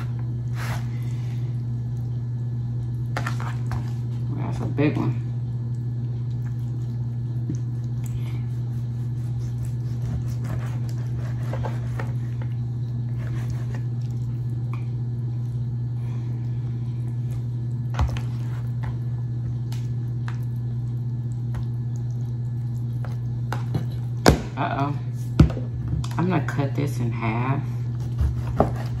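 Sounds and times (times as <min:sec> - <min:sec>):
steady low hum: 0:00.0 - 0:29.0
knife slicing on cutting board: 0:08.7 - 0:12.2, 0:28.0 - 0:29.0.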